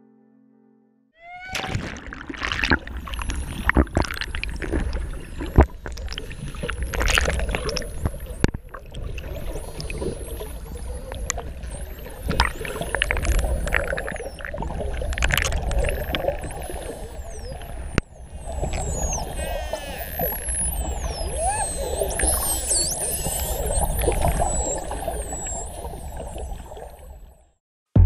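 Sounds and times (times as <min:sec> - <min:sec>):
water sloshing and bubbling underwater: 0:01.5 - 0:27.6
faint high whistles: 0:15.6 - 0:27.4.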